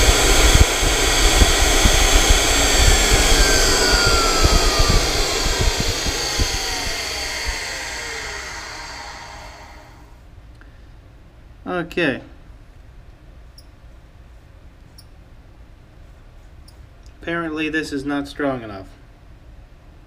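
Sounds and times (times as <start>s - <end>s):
grinder whine winding down: 0.0s - 10.2s.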